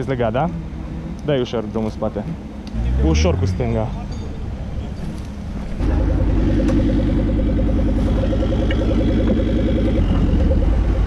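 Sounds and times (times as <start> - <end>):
off-road vehicle engine revving: 0.0 - 11.0.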